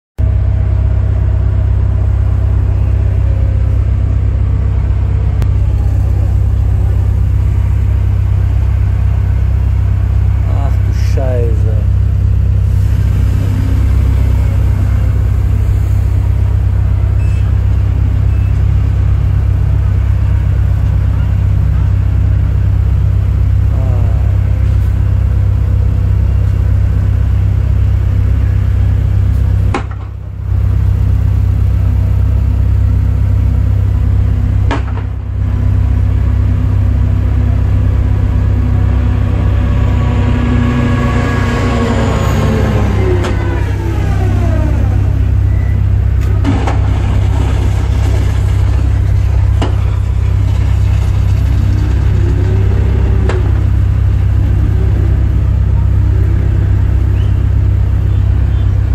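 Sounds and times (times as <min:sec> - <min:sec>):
faint whine: 0:00.2 - 0:58.9
low machinery rumble: 0:00.2 - 0:58.9.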